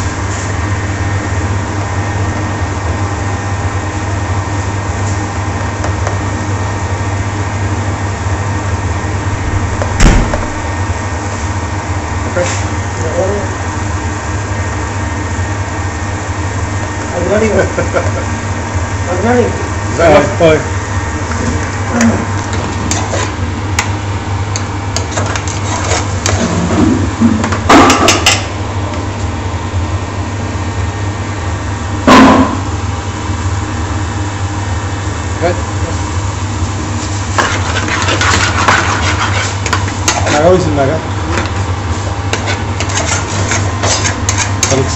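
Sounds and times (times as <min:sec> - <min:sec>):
low hum of kitchen machinery: 0:00.0 - 0:44.9
ventilation fan drone: 0:00.0 - 0:44.9
sharp clank: 0:09.4 - 0:10.7.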